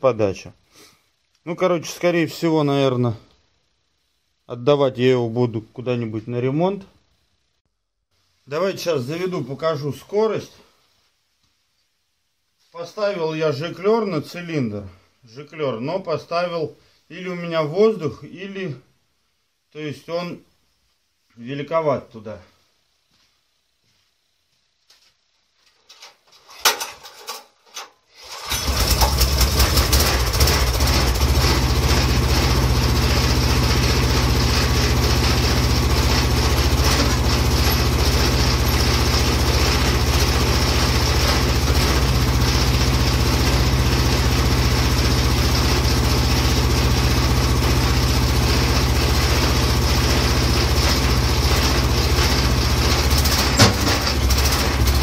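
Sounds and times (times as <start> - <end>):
mini excavator engine running: 28.4 - 55.0
clicks and knocks: 53.5 - 54.3
sharp knock: 53.6 - 54.1.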